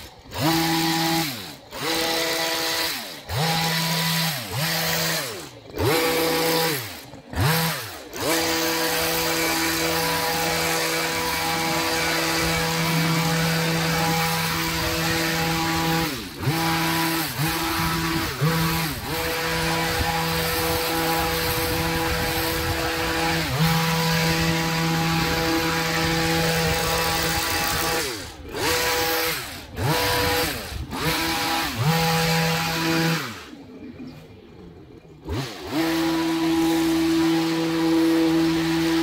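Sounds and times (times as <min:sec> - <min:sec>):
small engine revving: 0:00.0 - 0:39.0.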